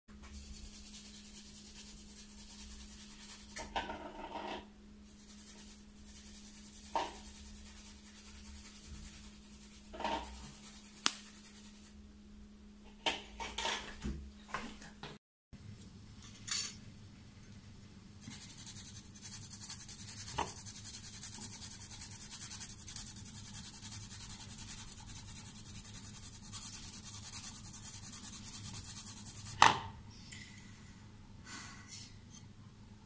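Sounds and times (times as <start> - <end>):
steady low hum: 4.7 - 12.8
utensil scraping plastic bowl: 9.8 - 10.6.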